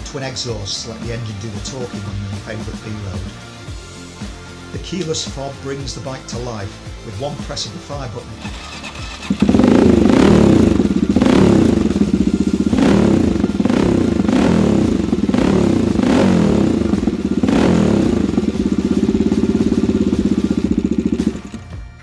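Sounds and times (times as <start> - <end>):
motorcycle engine revving: 8.2 - 22.0.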